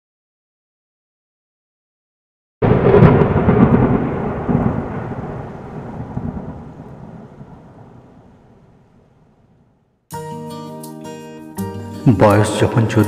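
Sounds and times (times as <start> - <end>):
thunder-like crash and rumble: 2.6 - 9.8.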